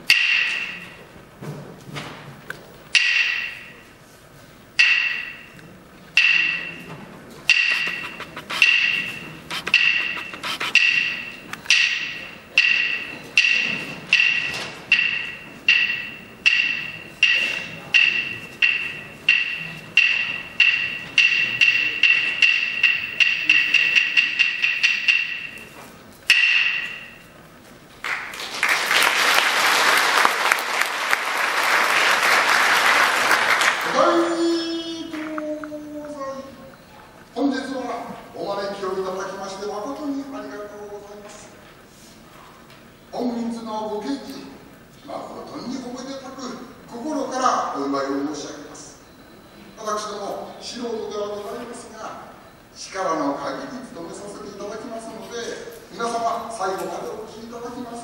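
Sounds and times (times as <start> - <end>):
hand percussion strokes: 6.2 - 6.9, 7.5 - 27.3
audience applause: 28.0 - 34.0.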